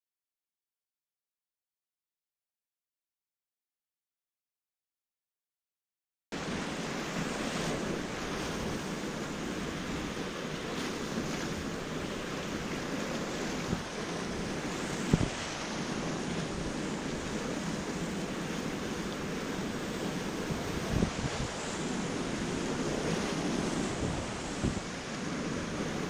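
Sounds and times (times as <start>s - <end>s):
whitewater rapids rushing: 6.4s - 26.0s.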